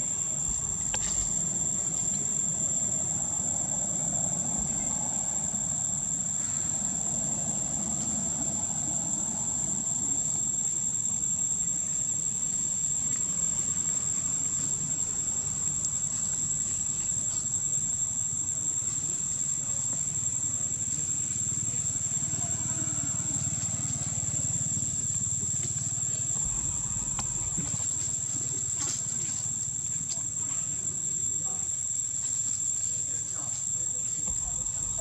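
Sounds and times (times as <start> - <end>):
high-pitched insect drone: 0.0 - 35.0
low steady rumble: 26.4 - 28.7, 34.3 - 35.0.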